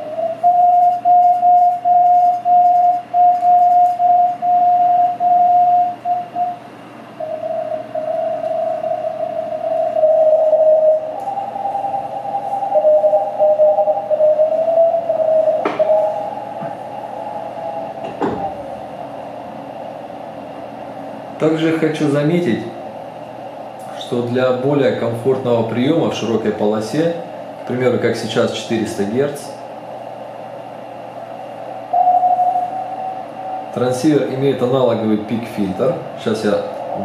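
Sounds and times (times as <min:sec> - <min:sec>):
morse code tone: 0:00.0 - 0:06.6, 0:07.2 - 0:16.6, 0:31.9 - 0:33.2
second lower tone: 0:00.0 - 0:06.6, 0:31.9 - 0:34.0
whistling radio sweeps: 0:00.0 - 0:37.0.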